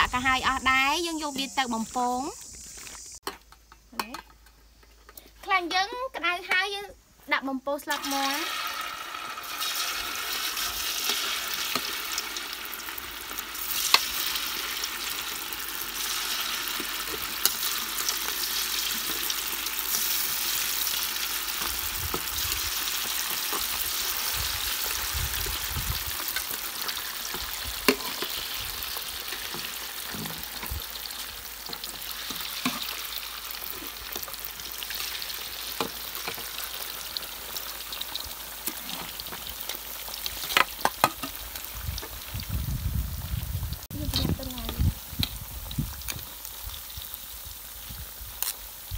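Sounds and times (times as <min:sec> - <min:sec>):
wings sizzling in hot oil: 0:00.0 - 0:04.8, 0:06.4 - 0:48.9.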